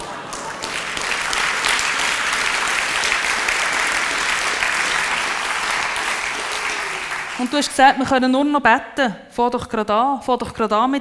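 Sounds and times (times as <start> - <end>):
audience applause: 0.0 - 8.0.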